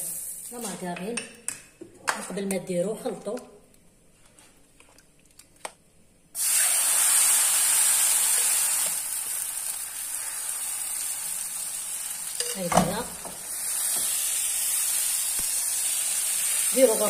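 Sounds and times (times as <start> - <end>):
batter sizzling in frying pan: 6.4 - 17.0.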